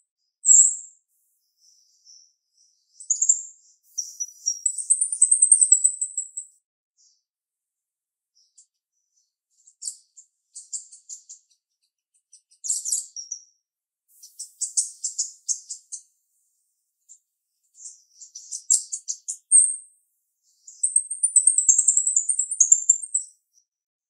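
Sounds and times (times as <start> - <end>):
clear bird whistle: 0.4 - 2.1, 3.0 - 6.6, 14.1 - 16.1, 17.7 - 19.8, 20.4 - 23.4
myna chirping and chattering: 3.9 - 6.4, 20.8 - 23.3.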